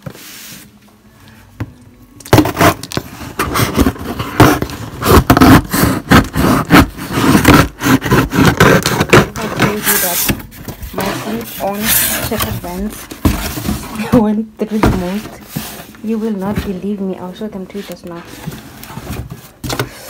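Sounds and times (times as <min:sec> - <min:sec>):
packing tape tearing: 0:02.2 - 0:14.0
cardboard flaps scraping and rustling: 0:02.3 - 0:20.0.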